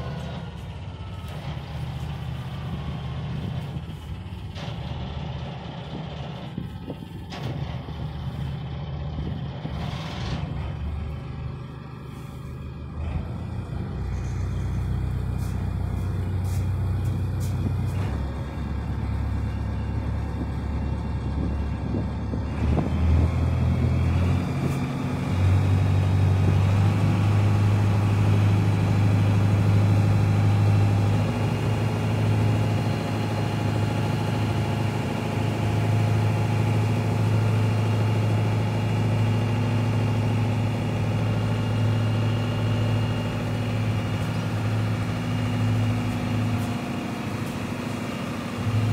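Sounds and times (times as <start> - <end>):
ferry engine humming: 0.0 - 48.9.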